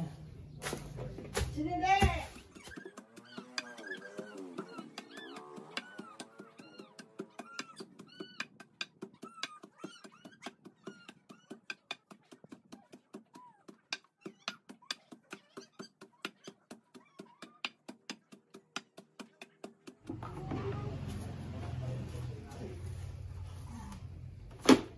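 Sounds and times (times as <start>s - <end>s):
animal chirping calls: 2.3s - 17.9s.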